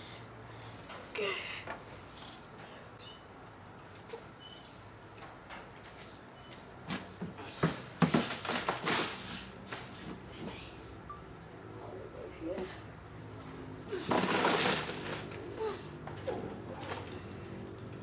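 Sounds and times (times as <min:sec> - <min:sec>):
faint bird chirps: 0:03.0 - 0:03.4.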